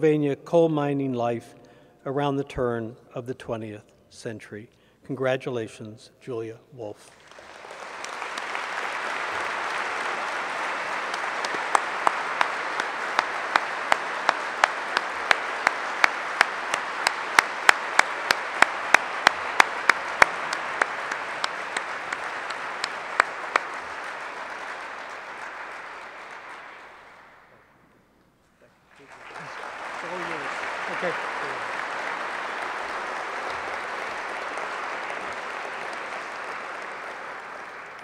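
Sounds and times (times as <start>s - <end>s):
person clapping loudly nearby: 7.1s - 27.3s, 29.0s - 38.0s
audience applauding: 7.1s - 27.7s, 28.9s - 38.0s.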